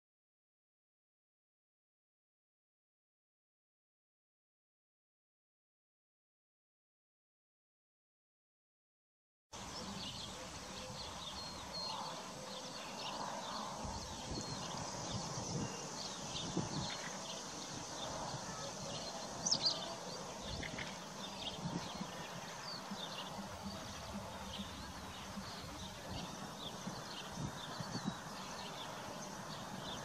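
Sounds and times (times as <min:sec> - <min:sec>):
hooves thudding softly: 0:19.1 - 0:30.0.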